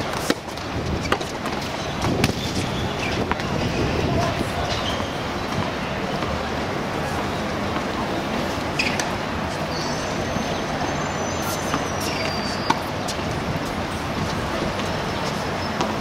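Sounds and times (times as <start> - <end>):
outdoor background noise: 0.0 - 16.0
tennis ball struck by racket: 0.1 - 2.4.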